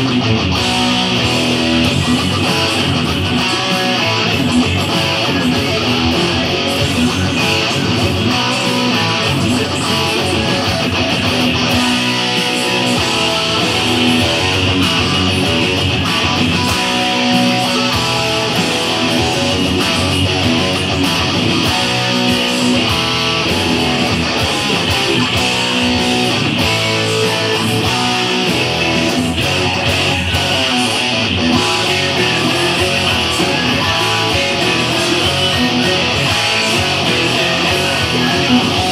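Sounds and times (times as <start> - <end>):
drums keeping a steady beat: 0.0 - 38.9
electric guitar: 0.0 - 38.9
hard rock band music: 0.0 - 38.9.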